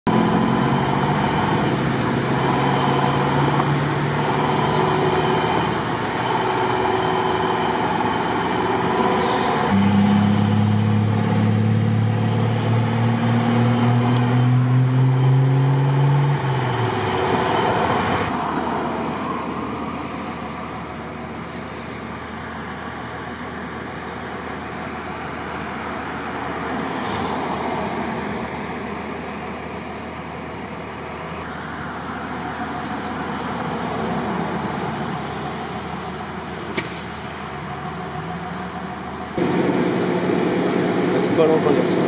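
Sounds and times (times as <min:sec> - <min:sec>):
vehicle engines idling: 0:00.1 - 0:13.2, 0:16.3 - 0:42.0
engine drone rising in pitch: 0:00.1 - 0:20.9, 0:31.4 - 0:42.0.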